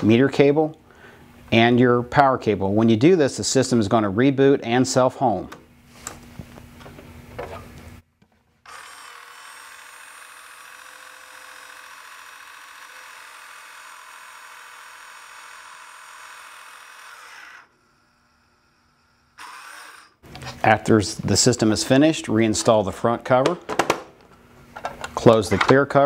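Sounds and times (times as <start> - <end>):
valve drive motor running: 8.7 - 20.2.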